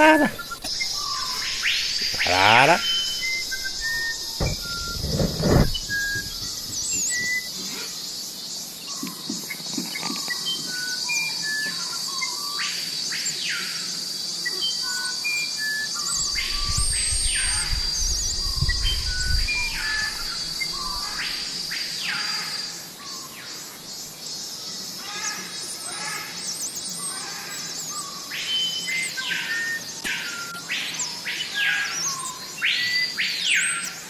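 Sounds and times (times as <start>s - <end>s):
short chirps and whistled calls: 0.0s - 8.2s, 8.8s - 23.3s, 25.7s - 34.0s
high-pitched insect drone: 0.0s - 34.0s
wind rumble on microphone: 3.3s - 7.5s, 16.2s - 21.0s.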